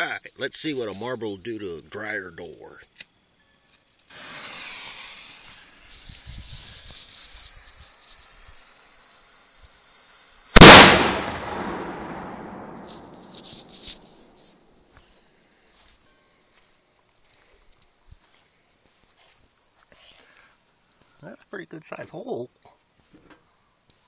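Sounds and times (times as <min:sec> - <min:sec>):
cannon bang: 0:10.6 - 0:13.8.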